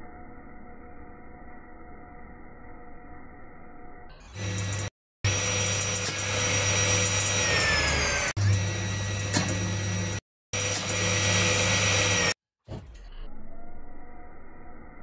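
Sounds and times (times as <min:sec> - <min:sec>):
circular saw blade whining: 0:00.0 - 0:09.3.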